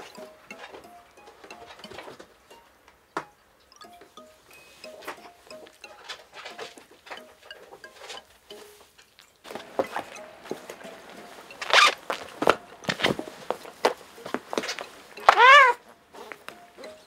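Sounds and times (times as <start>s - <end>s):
faint tinkling music: 0.0s - 17.0s.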